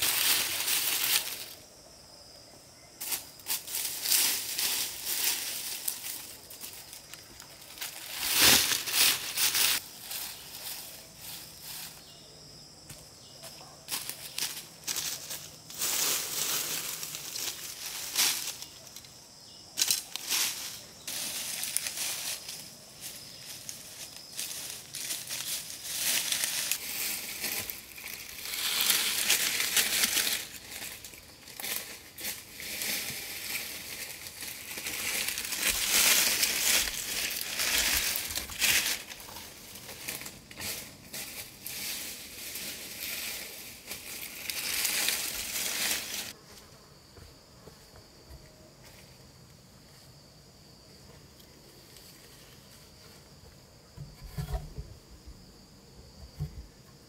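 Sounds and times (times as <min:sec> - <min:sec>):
dry leaves crunching and rustling: 0:00.0 - 0:01.7, 0:03.0 - 0:12.2, 0:13.9 - 0:19.0, 0:19.8 - 0:46.4
high insect drone: 0:00.0 - 0:57.0.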